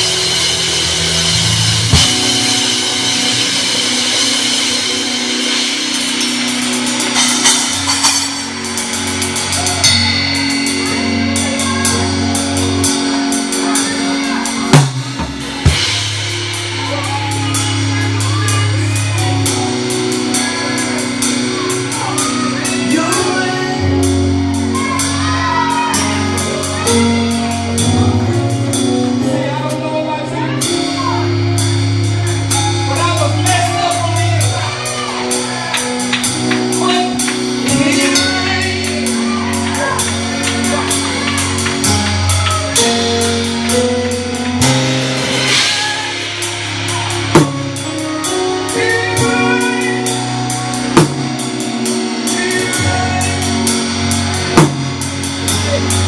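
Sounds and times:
bass notes: 0.0s - 56.0s
drum kit groove: 0.0s - 56.0s.

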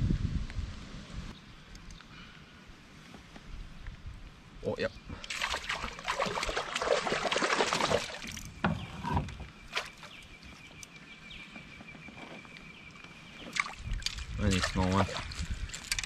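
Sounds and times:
water splashing and churning: 5.2s - 10.8s, 13.2s - 16.0s.

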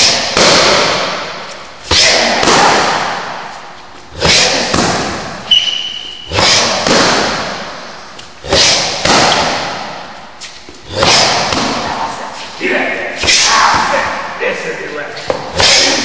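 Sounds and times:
strikes on focus mitt echoing: 0.0s - 3.5s, 4.1s - 5.5s, 6.3s - 10.2s, 10.9s - 12.1s
brief high squeak: 5.5s - 6.2s.

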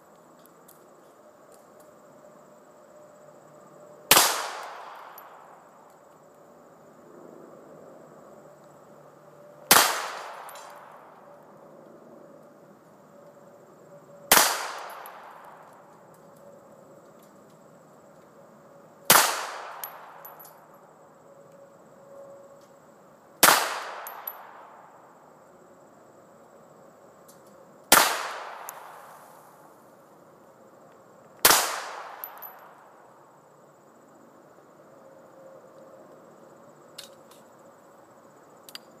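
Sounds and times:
pistol shots echoing: 4.1s - 5.4s, 9.7s - 10.9s, 14.3s - 15.6s, 19.1s - 20.4s, 23.4s - 24.6s, 27.9s - 29.0s, 31.5s - 32.5s.

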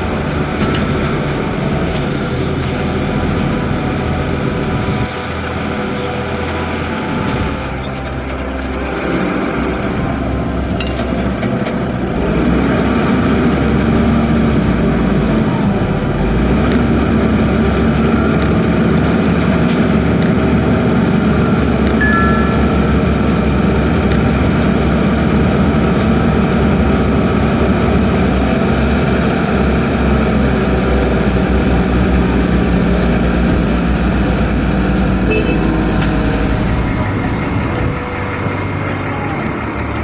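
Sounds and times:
crane diesel engine running: 0.0s - 40.0s.

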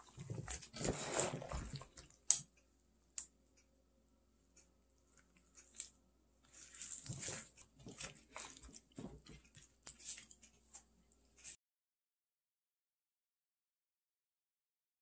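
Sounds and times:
squishing and crunching food: 5.1s - 11.6s.

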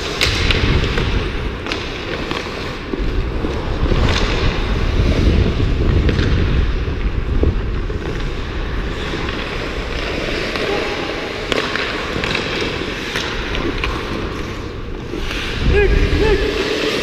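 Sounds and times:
skate blades scraping ice: 0.0s - 17.0s
wind buffeting microphone: 2.8s - 10.5s, 14.7s - 16.6s.

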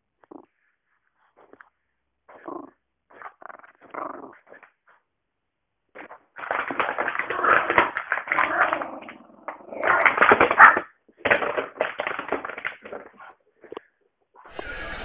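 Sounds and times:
dog growling: 2.3s - 5.0s.

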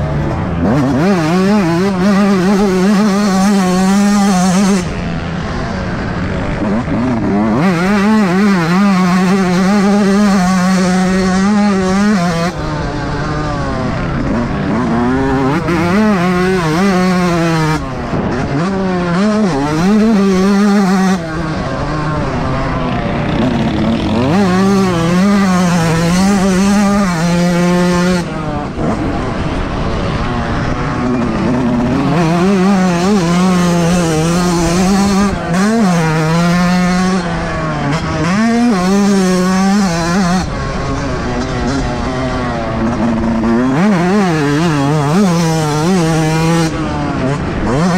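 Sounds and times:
dirt bike engine revving: 0.0s - 47.9s.

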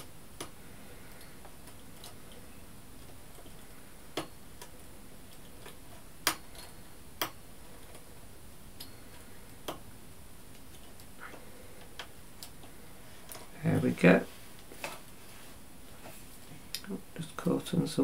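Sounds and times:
metal bodkin clicking on needles: 0.0s - 2.4s, 3.0s - 8.0s.

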